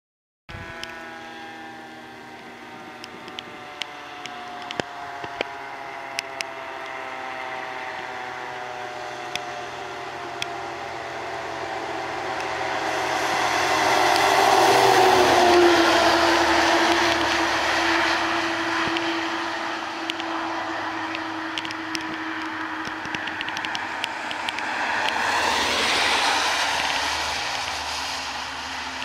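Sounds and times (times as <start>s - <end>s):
fire engine droning: 0.5s - 29.0s
sharp clicks: 21.1s - 25.2s
tyre hiss on wet road: 22.2s - 29.0s.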